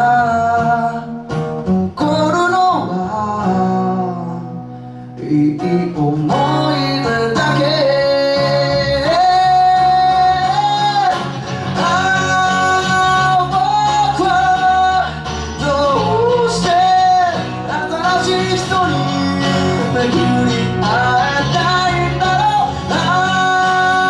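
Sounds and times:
electric guitar: 0.0s - 24.0s
strummed acoustic guitar: 0.0s - 24.0s
man singing long held notes: 1.9s - 24.0s
electric bass: 6.3s - 24.0s.

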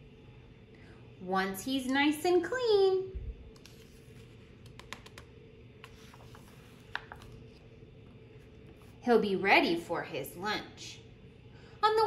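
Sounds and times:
book page rustling: 3.6s - 5.0s, 5.8s - 7.8s.

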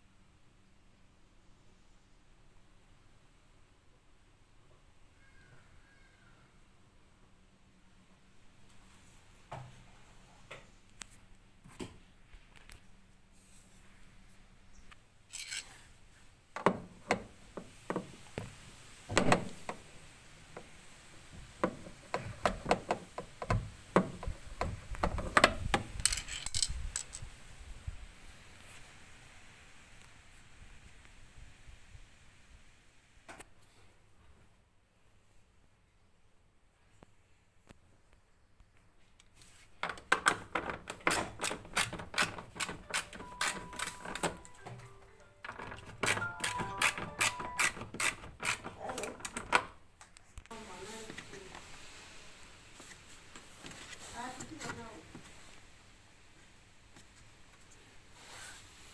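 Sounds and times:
ratchet wrench clicking: 15.3s - 15.6s
metal rod scraping: 15.3s - 15.8s.

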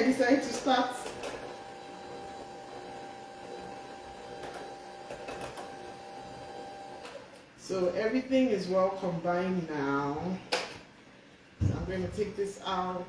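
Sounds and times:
electric hand mixer whirring: 0.4s - 7.2s.

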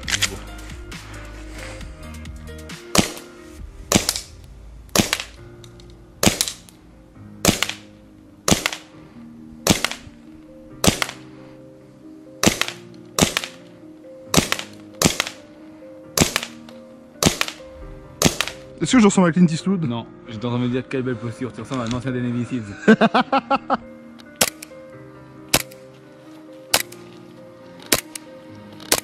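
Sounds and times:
airsoft pistol shots: 2.9s - 3.3s, 3.9s - 4.3s, 4.9s - 5.4s, 6.2s - 6.7s, 7.4s - 7.9s, 8.5s - 8.9s, 9.6s - 10.1s, 10.8s - 11.2s, 12.4s - 13.6s, 14.3s - 15.4s, 16.2s - 16.6s, 17.2s - 17.6s, 18.2s - 18.6s.

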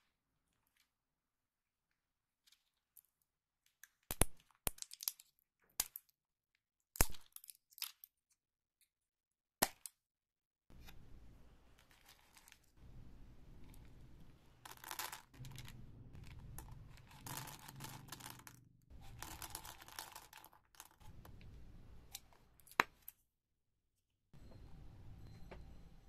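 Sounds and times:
candy wrappers crinkling: 11.8s - 12.8s, 14.7s - 23.2s.

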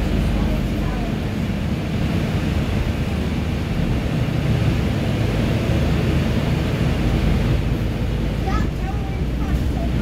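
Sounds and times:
diesel bus engine rumble: 0.0s - 10.0s
road noise: 0.0s - 10.0s.

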